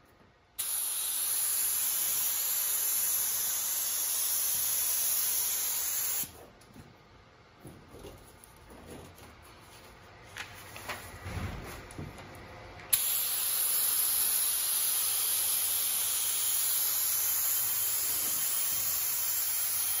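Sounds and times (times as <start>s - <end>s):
glue spray hissing: 0.6s - 6.4s, 12.9s - 20.0s
soft knocks and rustles: 7.6s - 12.4s.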